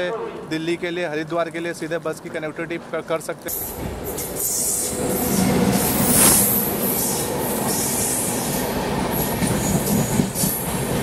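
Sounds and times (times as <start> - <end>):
train passing at speed: 2.2 - 11.0.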